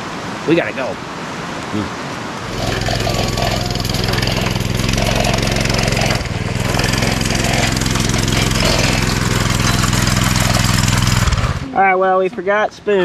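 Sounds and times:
small engine humming: 0:02.4 - 0:11.7.

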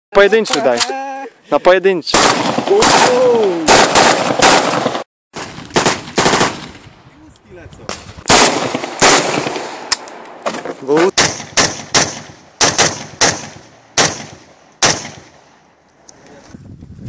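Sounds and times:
gunshots single shots: 0:02.1 - 0:06.8, 0:07.9 - 0:15.5.

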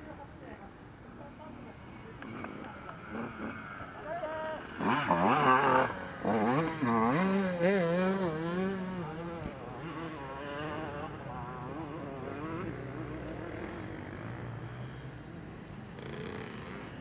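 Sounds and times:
motocross bike engine revving: 0:01.4 - 0:17.0.

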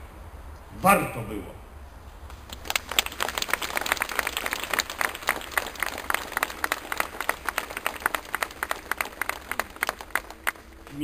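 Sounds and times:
crowd applauding: 0:02.3 - 0:11.0.

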